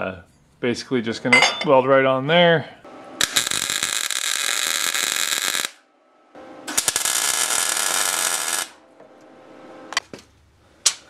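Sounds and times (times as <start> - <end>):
welding arc crackling: 3.2 - 5.8, 6.7 - 8.8.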